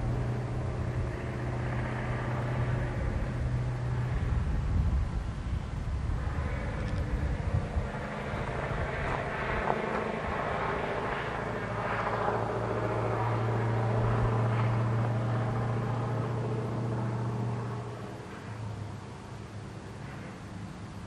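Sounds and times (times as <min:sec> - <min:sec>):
distant locomotive drone: 0:00.0 - 0:21.0.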